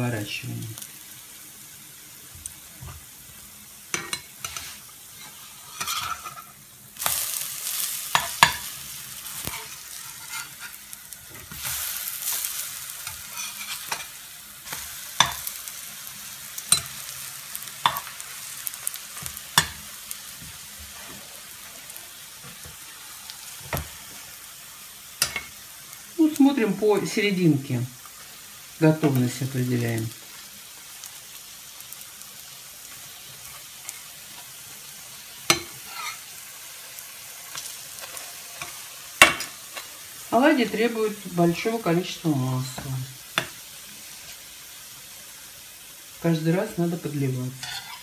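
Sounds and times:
pancakes sizzling in oil: 0.0s - 48.0s
spatula tapping pan: 8.1s - 8.7s, 14.7s - 15.5s, 17.8s - 18.1s, 19.2s - 20.6s, 35.4s - 36.1s, 38.6s - 39.5s, 42.8s - 43.6s.

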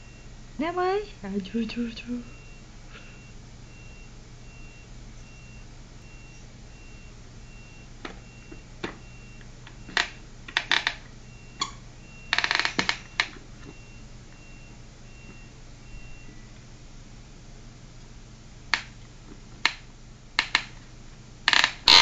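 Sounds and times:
faint high electronic beep: 2.2s - 9.4s.

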